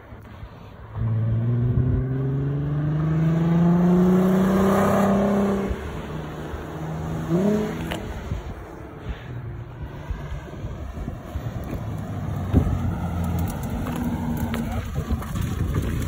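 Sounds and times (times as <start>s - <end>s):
car engine accelerating past: 0.9s - 8.4s.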